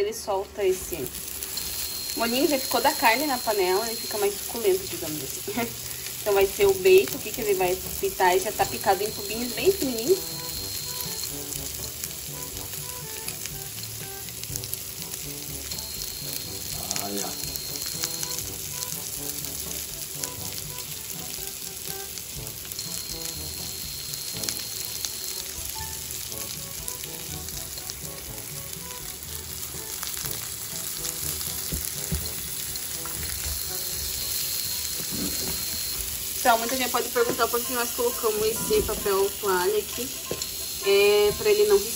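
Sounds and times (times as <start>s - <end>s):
bacon sizzling in a pan: 0.2s - 41.9s
spatula scraping a pan: 31.8s - 36.0s.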